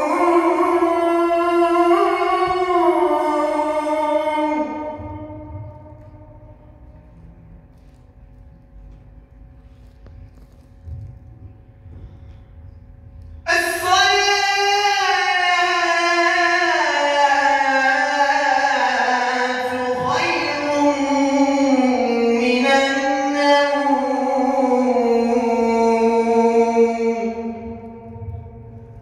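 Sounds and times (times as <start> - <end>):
man chanting call to prayer: 0.0 - 6.2, 13.5 - 29.0.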